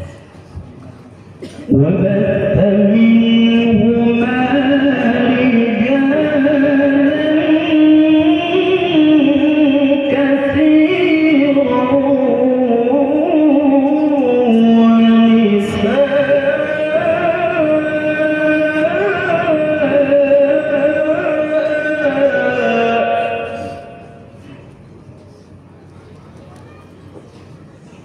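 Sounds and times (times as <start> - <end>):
man reciting melodically into microphone: 1.5 - 24.4.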